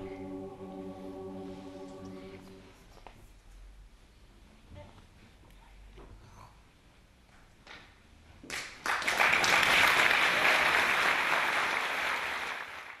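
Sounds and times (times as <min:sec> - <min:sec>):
audience applauding: 0:08.5 - 0:13.0.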